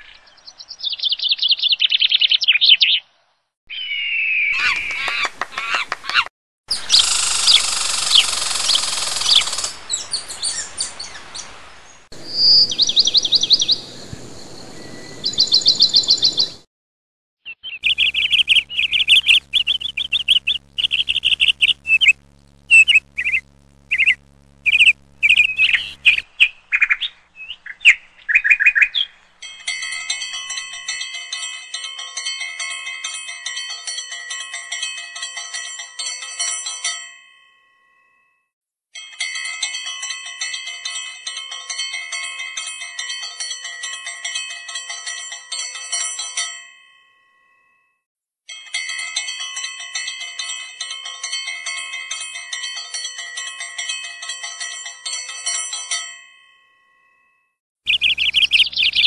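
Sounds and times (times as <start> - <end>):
birds chirping and trilling: 0.0 - 16.6, 17.5 - 29.5, 57.9 - 59.0.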